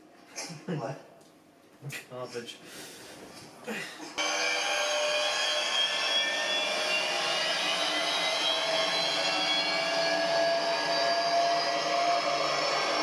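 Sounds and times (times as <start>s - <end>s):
hand dryer blowing: 4.2s - 13.0s.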